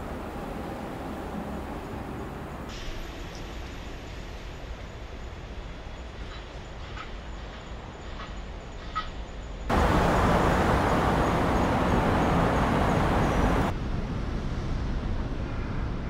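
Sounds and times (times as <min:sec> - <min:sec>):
road traffic noise: 0:00.0 - 0:04.4, 0:09.7 - 0:13.8.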